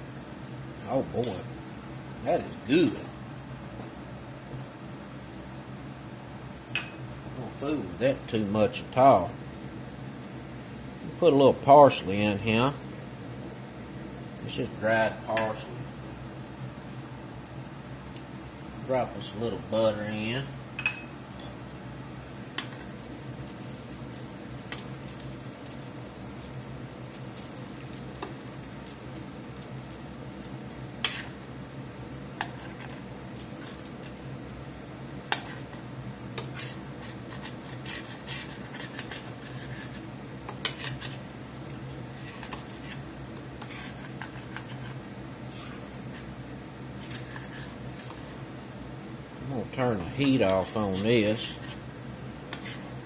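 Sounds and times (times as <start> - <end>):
steady low hum: 0.0 - 53.0
metal spoon clinking on a pot: 20.8 - 21.5.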